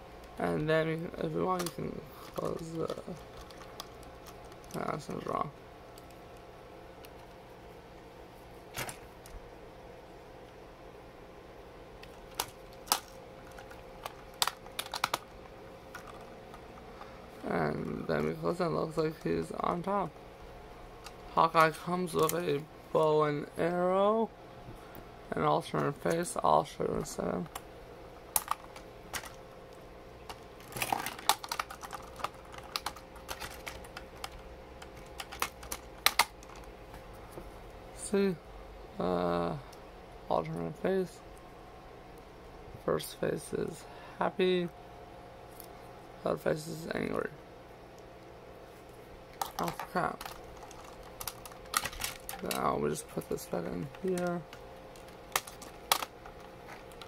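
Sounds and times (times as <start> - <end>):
plastic pieces clicking: 1.6 - 4.9, 12.0 - 15.3, 28.4 - 29.4, 30.3 - 36.7, 49.3 - 57.0.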